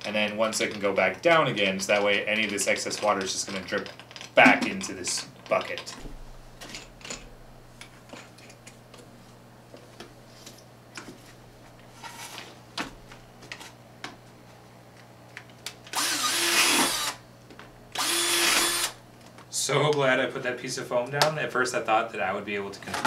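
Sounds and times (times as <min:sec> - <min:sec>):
cordless drill boring plastic: 0:15.9 - 0:17.2, 0:18.0 - 0:19.0.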